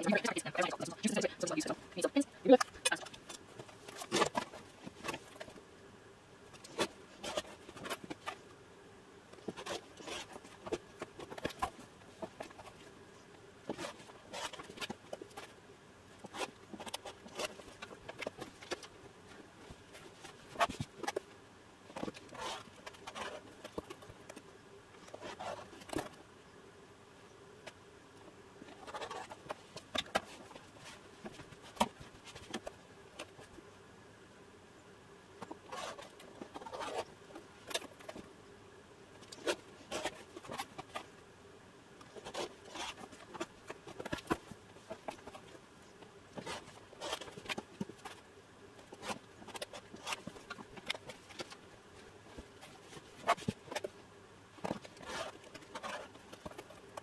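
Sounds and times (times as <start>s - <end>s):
fabric rustling: 28.6s - 33.6s, 42.1s - 45.6s, 54.6s - 57.0s.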